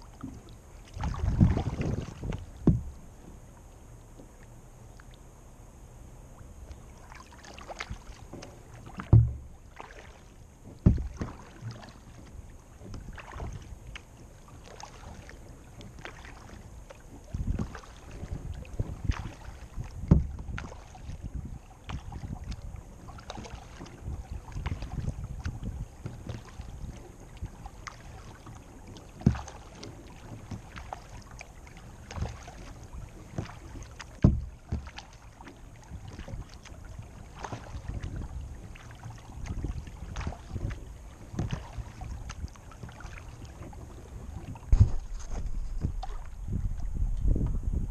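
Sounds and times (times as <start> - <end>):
paddle dipping and dripping: 0.0 - 5.3, 6.3 - 47.6
thumps on plastic hull: 1.0 - 3.0, 8.3 - 9.5, 10.7 - 11.9, 20.0 - 20.7, 29.2 - 30.8, 32.0 - 36.4, 39.4 - 47.6.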